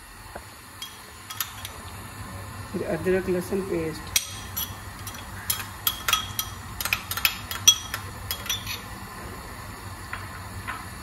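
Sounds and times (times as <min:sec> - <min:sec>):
low steady hum: 0:00.0 - 0:11.0
metal utensils clinking on cookware: 0:00.8 - 0:01.8, 0:04.1 - 0:08.9.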